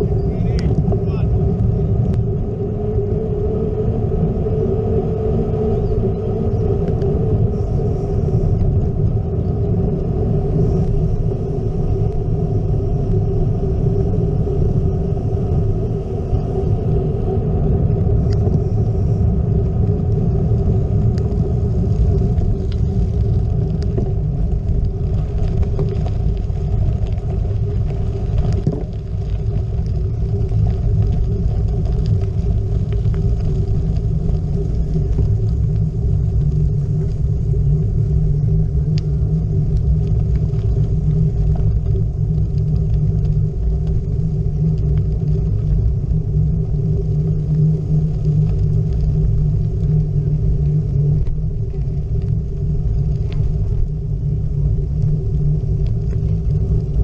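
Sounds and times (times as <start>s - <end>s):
steady hum: 0.0s - 57.0s
wind and road rumble: 0.0s - 57.0s.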